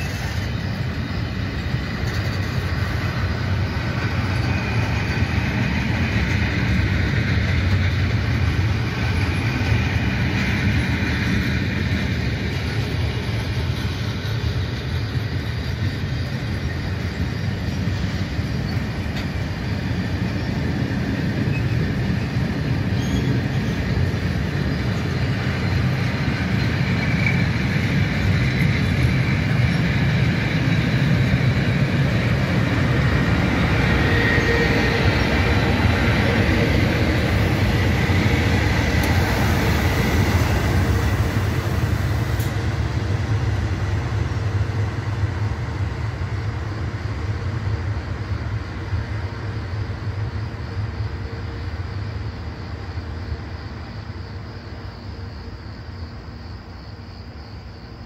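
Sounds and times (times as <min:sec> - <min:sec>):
train wheels rumbling on rails: 0:00.0 - 0:58.0
high wheel squeal: 0:21.4 - 0:24.0, 0:32.7 - 0:41.2.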